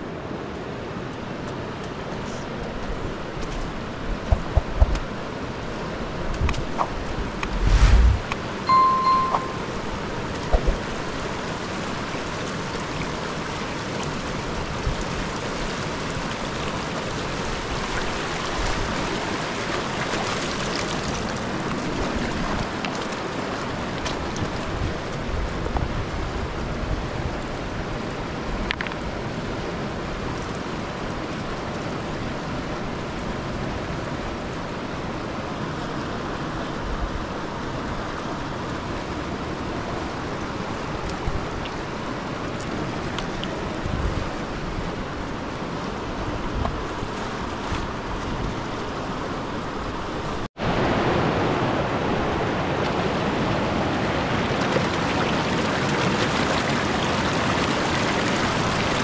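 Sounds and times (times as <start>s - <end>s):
river rushing: 7.4s - 9.8s, 50.6s - 59.0s.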